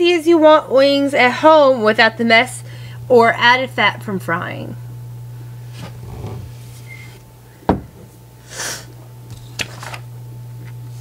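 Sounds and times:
low electrical hum: 0:00.0 - 0:11.0
item thudding on a table: 0:07.7 - 0:08.1.

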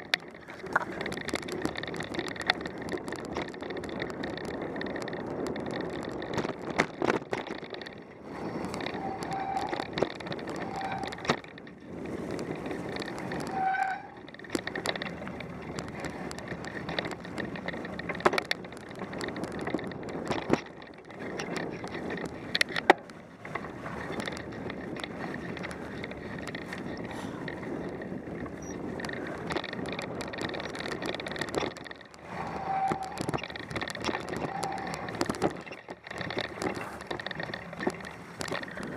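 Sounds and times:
bike rattling: 0:00.0 - 0:38.9
bike tyres rolling over leaves: 0:00.0 - 0:38.9
short squeaks: 0:08.5 - 0:11.2, 0:28.6 - 0:28.8, 0:32.2 - 0:37.0
sharp knocks over bumps: 0:14.1 - 0:38.9.

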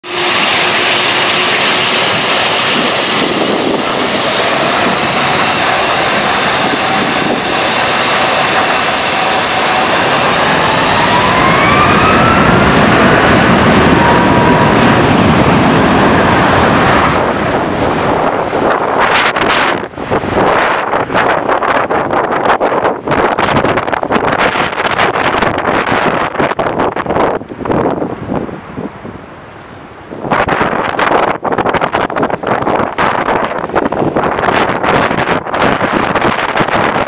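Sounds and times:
jet engines at take-off power: 0:00.0 - 0:21.9
jet engine whine: 0:00.0 - 0:26.8.

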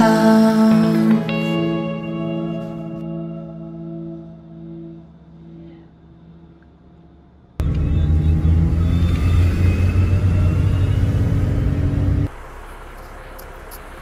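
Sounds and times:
outdoor background noise: 0:00.0 - 0:14.0
vehicle engine and road rumble: 0:07.5 - 0:14.0.

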